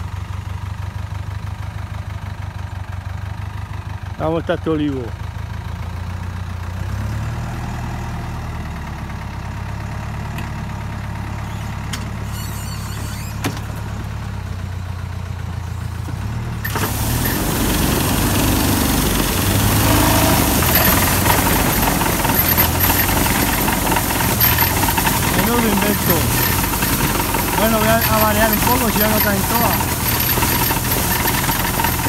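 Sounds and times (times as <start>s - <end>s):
tractor engine running: 0.0s - 32.0s
tree shaker machine shaking tree: 16.7s - 32.0s.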